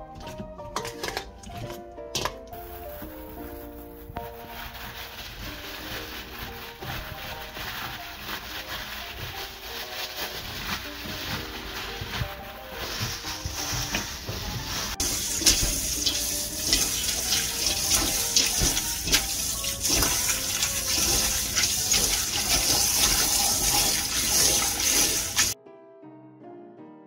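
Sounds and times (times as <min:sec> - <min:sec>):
water splashing in a bowl: 0:15.0 - 0:25.6.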